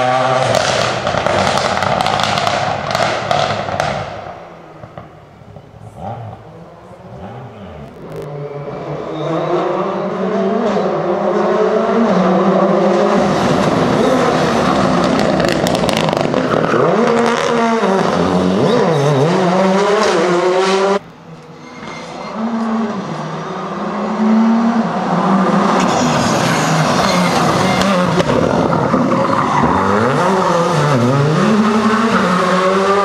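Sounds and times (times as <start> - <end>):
rally car engine revving: 0.0 - 4.2, 5.6 - 21.5, 22.2 - 33.0
sharp cracks: 0.5 - 5.2.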